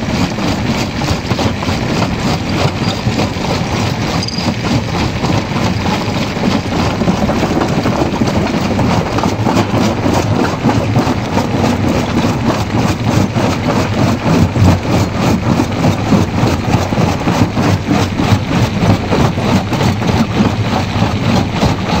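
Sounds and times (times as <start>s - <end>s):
jaw crusher crushing rock: 0.0s - 22.0s.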